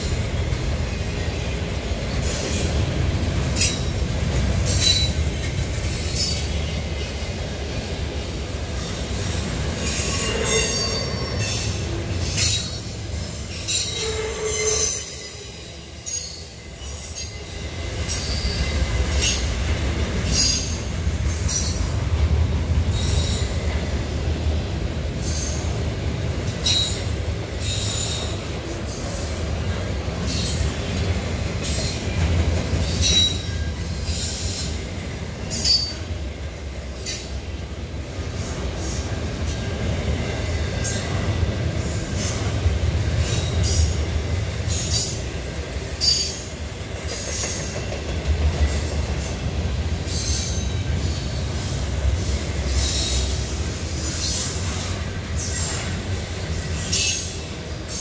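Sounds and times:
steel wheels rumbling on rail: 0:00.0 - 0:58.0
high-pitched wheel squeals: 0:09.8 - 0:19.4.

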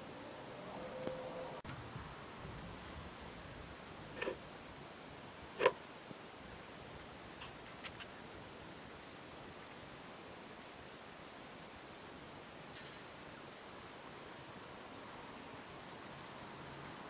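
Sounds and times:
outdoor background hiss: 0:00.0 - 0:17.0
small bird chirping: 0:03.7 - 0:05.2, 0:05.9 - 0:06.6, 0:07.3 - 0:09.4, 0:10.0 - 0:10.3, 0:10.9 - 0:15.0, 0:15.6 - 0:17.0.

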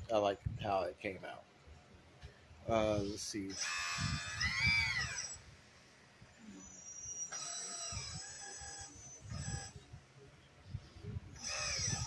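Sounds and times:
hydraulic pump whining: 0:03.5 - 0:05.5, 0:06.7 - 0:09.8, 0:11.4 - 0:12.0.

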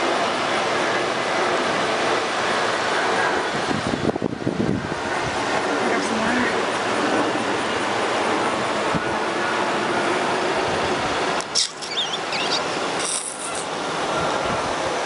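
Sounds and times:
river rapids rushing: 0:05.0 - 0:15.0
short high squeaks: 0:11.5 - 0:13.7.

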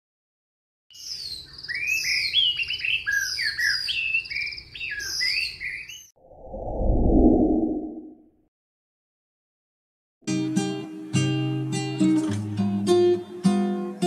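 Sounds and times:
bird singing chirps and whistles: 0:00.9 - 0:06.2
low whooshing swell: 0:06.2 - 0:08.2.

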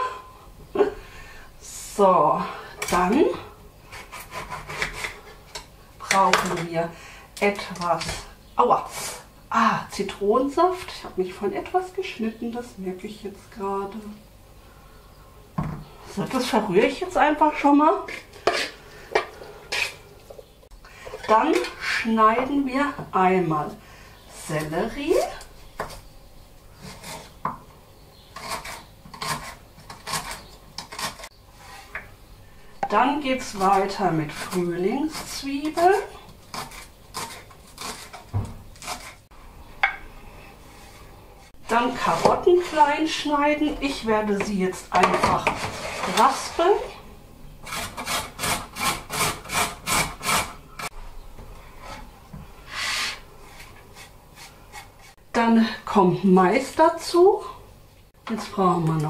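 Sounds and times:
carrot grating on grater: 0:03.9 - 0:05.4, 0:28.3 - 0:32.0, 0:33.4 - 0:39.2, 0:47.6 - 0:50.9
soft scrape: 0:31.5 - 0:32.0, 0:40.3 - 0:42.3, 0:45.5 - 0:46.6, 0:51.7 - 0:55.2.

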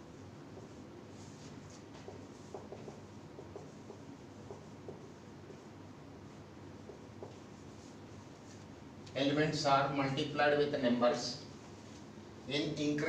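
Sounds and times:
low room hum: 0:00.0 - 0:13.0
marker pen writing on whiteboard: 0:00.1 - 0:08.8.

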